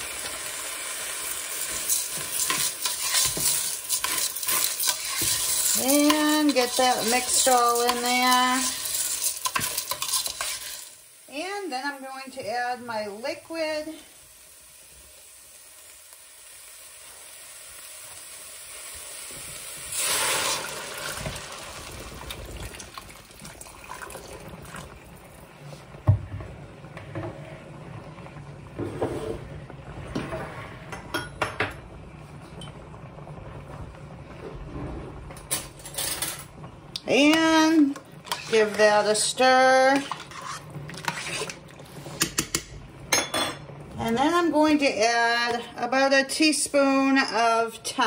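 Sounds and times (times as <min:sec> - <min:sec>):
faint sizzling: 0:00.0 - 0:48.0
liquid pouring and sloshing: 0:19.9 - 0:25.4.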